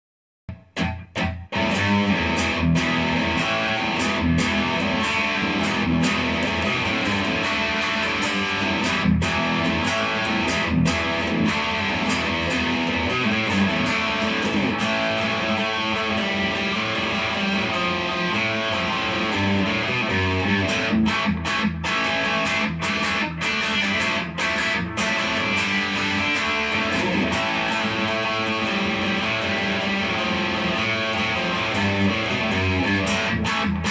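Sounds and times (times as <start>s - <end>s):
electric guitar chords and notes: 0.5s - 33.9s.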